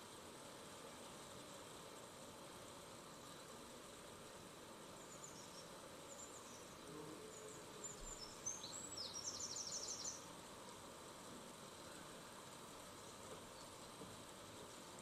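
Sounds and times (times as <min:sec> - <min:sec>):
steady hiss: 0:00.0 - 0:15.0
faint bird chirps and trill: 0:05.0 - 0:10.2.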